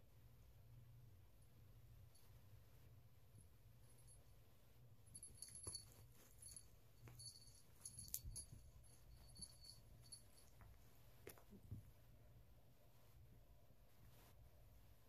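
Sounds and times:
small bell jingling: 5.0 - 11.7.

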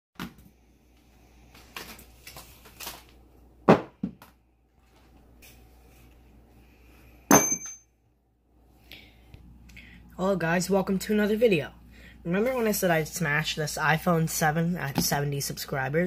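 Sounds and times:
sharp hit with metallic ring: 7.3 - 7.9.

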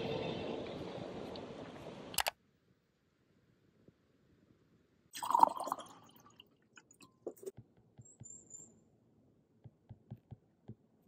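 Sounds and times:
water dripping into a glass mug: 5.2 - 7.5.

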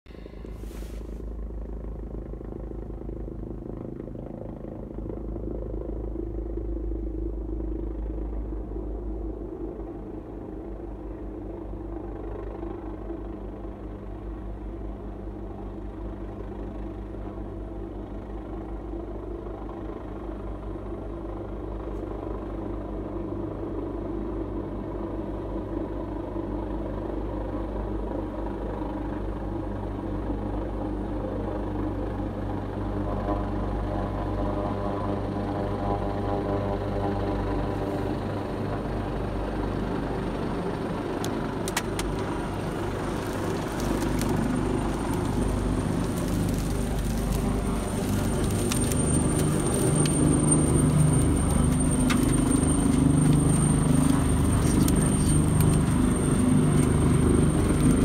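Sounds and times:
helicopter rotor drone: 0.1 - 58.0
car engine idling: 40.3 - 58.0.

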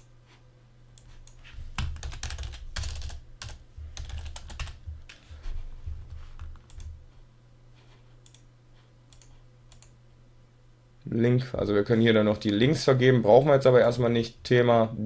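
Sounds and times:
keyboard typing: 1.0 - 5.3, 6.0 - 7.0.

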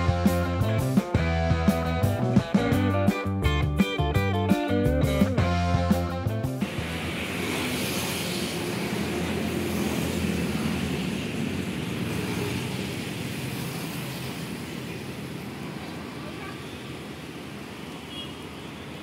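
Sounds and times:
background music: 0.0 - 8.6
road traffic: 4.4 - 19.0.

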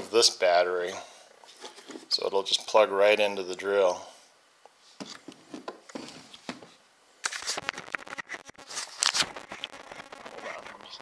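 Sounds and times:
camera handling clicks and rustling: 7.2 - 7.8.

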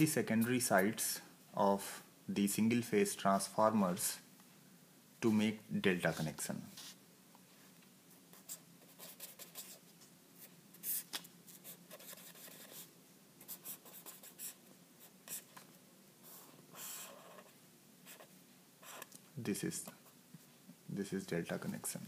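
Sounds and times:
pen scratching on paper: 8.4 - 9.8, 11.6 - 15.6, 16.2 - 19.1.

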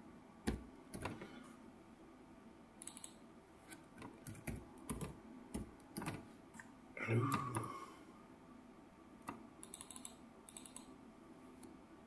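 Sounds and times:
computer keyboard typing: 2.8 - 3.2, 4.2 - 6.2, 9.3 - 10.9.

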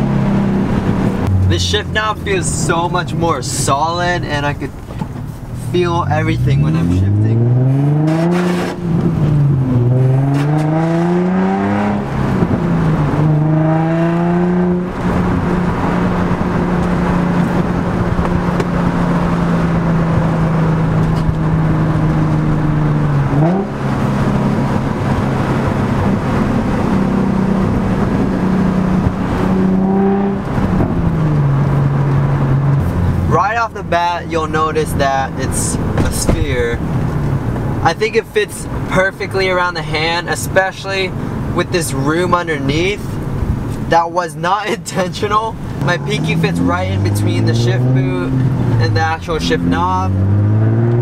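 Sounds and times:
car engine accelerating through gears: 4.8 - 33.4, 45.5 - 51.0.

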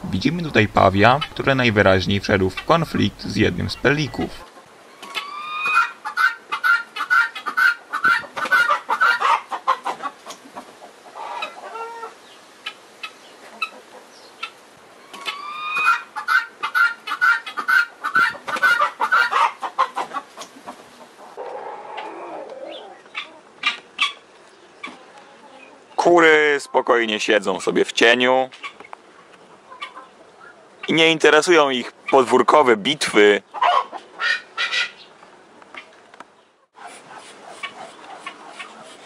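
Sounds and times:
guinea fowl alarm calls: 0.8 - 10.2, 11.1 - 25.8, 28.5 - 31.0, 33.4 - 35.1, 36.8 - 39.0.

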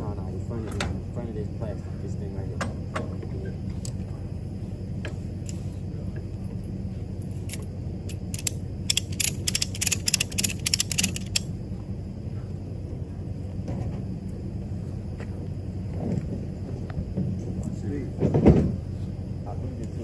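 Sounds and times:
low hum: 0.0 - 20.0
winch ratcheting clicks: 7.5 - 11.5.

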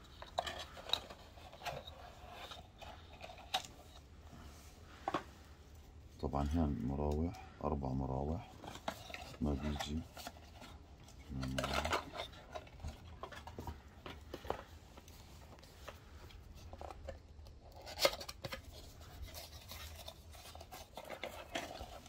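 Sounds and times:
hands handling plastic packaging: 0.0 - 7.6, 8.3 - 22.0
man's low voice: 6.2 - 8.5, 9.4 - 10.1, 11.3 - 12.0.

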